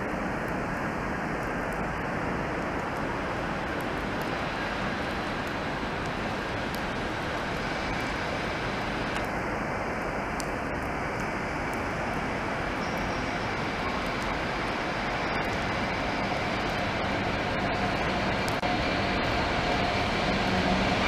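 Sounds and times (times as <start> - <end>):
diesel locomotive engine running: 13.0 - 21.0.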